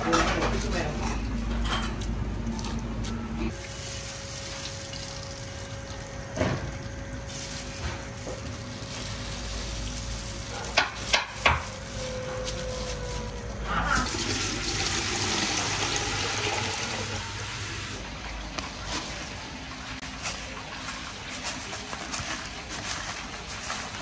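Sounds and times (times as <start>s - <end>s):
kitchen clatter: 0.0s - 2.1s, 10.0s - 14.6s.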